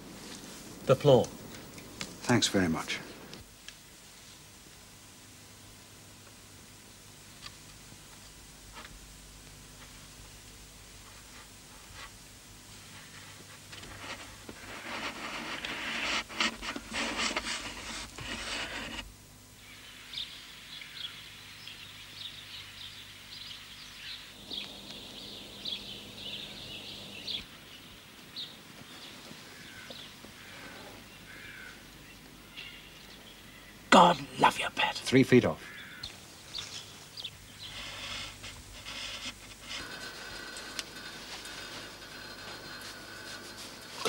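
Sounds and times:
rough scraping with knocks: 11.0 - 19.1, 35.8 - 44.0
small birds chirping: 19.6 - 44.0.

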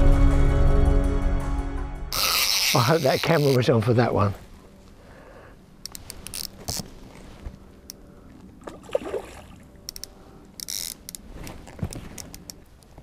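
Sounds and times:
water splashing: 8.6 - 9.9.

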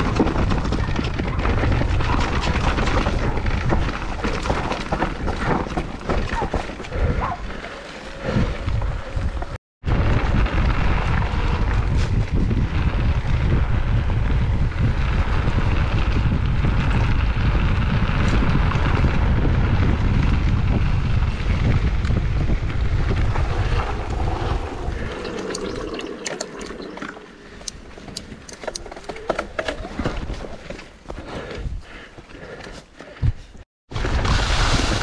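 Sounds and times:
bike clicks and rattles: 0.0 - 33.5
bike tyres and frame rumbling: 0.0 - 35.0
wind buffeting microphone: 8.2 - 28.7.

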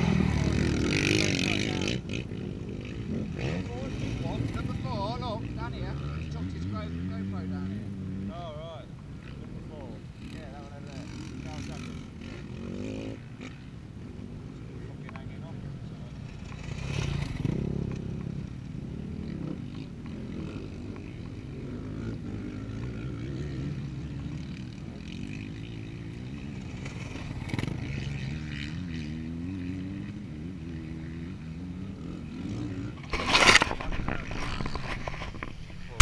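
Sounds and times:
motocross bike engines: 0.0 - 36.0
camera handling rustle and scrape: 33.0 - 36.0.

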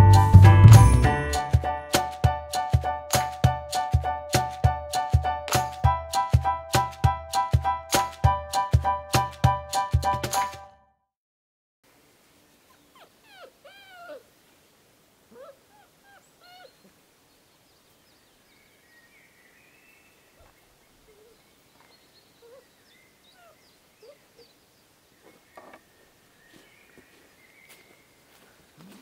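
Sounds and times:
puppies whining and squeaking: 12.7 - 14.2, 15.3 - 16.9, 22.4 - 22.6.

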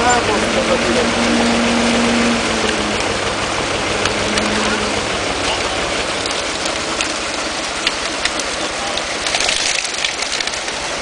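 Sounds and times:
motor running low: 0.0 - 8.7
fish thrashing and splashing water: 0.0 - 11.0.

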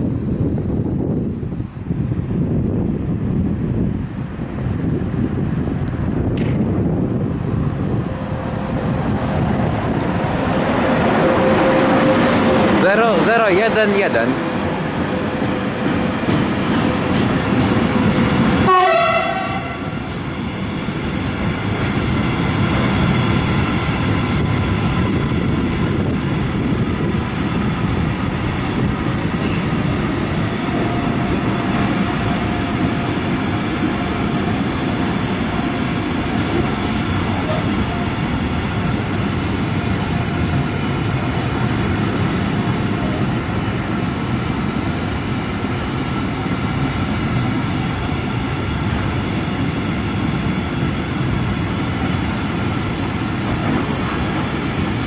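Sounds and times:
freight train wagons rumbling: 0.0 - 55.0
train horn note dropping: 18.6 - 20.0.

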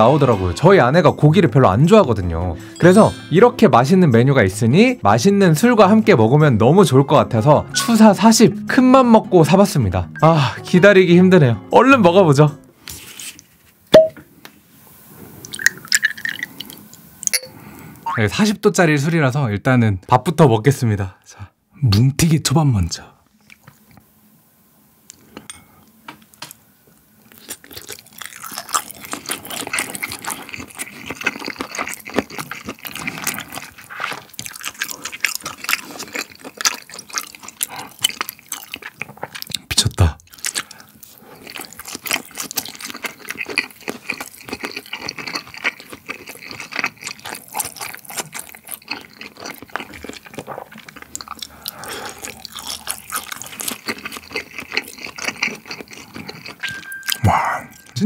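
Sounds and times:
close-miked chewing: 27.2 - 58.0.

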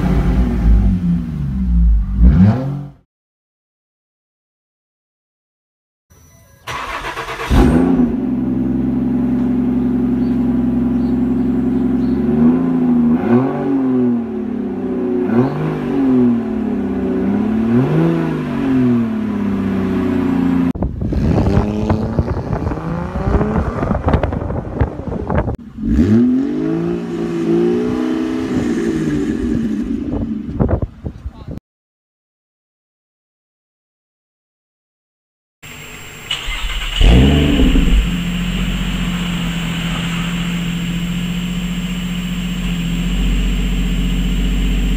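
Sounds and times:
car engine starting and idling: 6.6 - 13.1, 35.7 - 44.9
engine revving in blips: 6.7 - 14.3, 15.2 - 16.6, 36.3 - 44.9.

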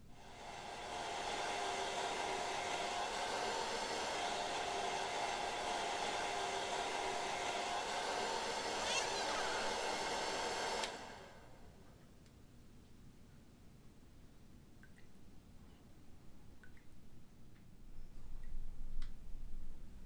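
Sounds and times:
hair dryer whirring hum: 0.1 - 11.8
hair dryer switch click: 10.6 - 11.1.

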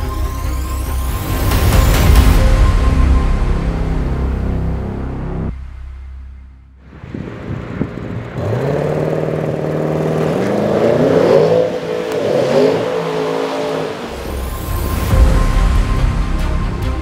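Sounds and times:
car engine accelerating hard: 6.9 - 15.1.

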